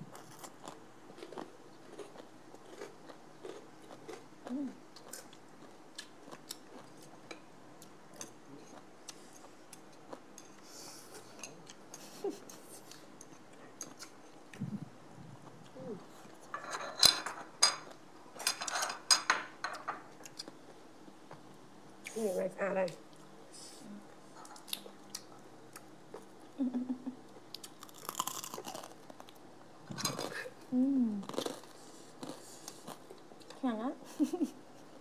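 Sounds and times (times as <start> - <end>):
dishes clattering: 16.5 - 20.1.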